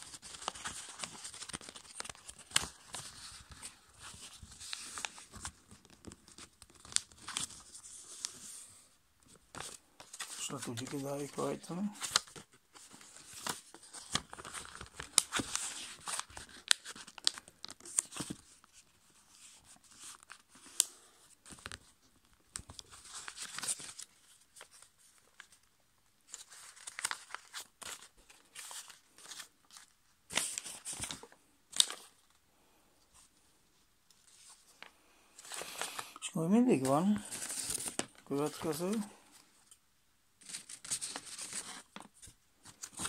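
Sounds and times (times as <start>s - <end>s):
paper rustling and crinkling: 0.0s - 32.4s, 33.1s - 39.8s, 40.4s - 43.0s.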